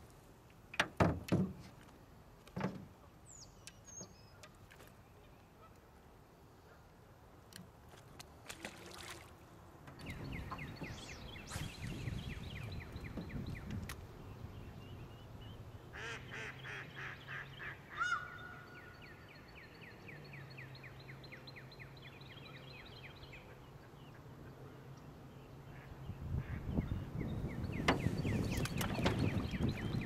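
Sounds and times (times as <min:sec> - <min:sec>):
birds chirping rapidly: 0:10.0 - 0:24.2, 0:25.4 - 0:30.0.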